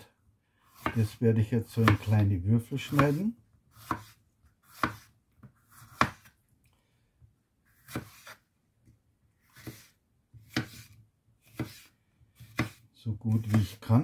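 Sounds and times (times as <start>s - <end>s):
knife slicing pepper on board: 0.7s - 2.2s, 2.8s - 6.4s, 7.7s - 8.4s, 9.4s - 13.8s.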